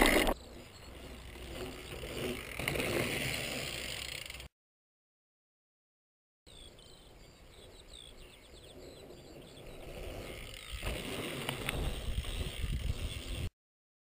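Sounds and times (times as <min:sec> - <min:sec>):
birds chirping: 0:00.0 - 0:03.0, 0:06.5 - 0:13.5
quiet outdoor ambience: 0:00.0 - 0:04.5, 0:06.5 - 0:13.4.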